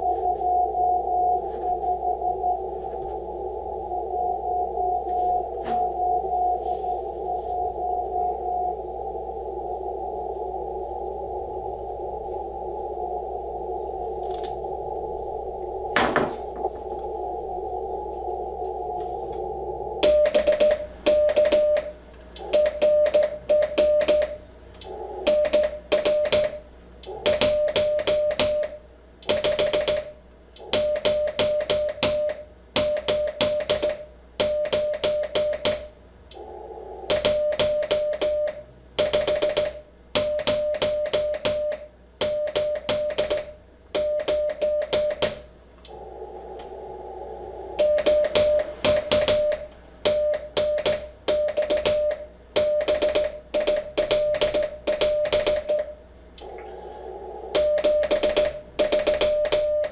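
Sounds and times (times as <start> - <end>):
morse code sidetone beeps: 0.0 - 3.1, 4.1 - 8.8, 20.0 - 24.4, 37.1 - 45.3, 47.8 - 56.0, 57.5 - 59.9
radio receiver hiss: 0.0 - 59.9.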